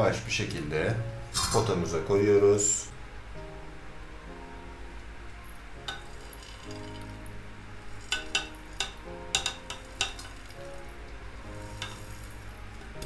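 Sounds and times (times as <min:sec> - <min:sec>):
soft background music: 0:00.0 - 0:13.0
glass clinking on ceramic: 0:08.1 - 0:10.5
light gritty scraping: 0:11.5 - 0:13.0.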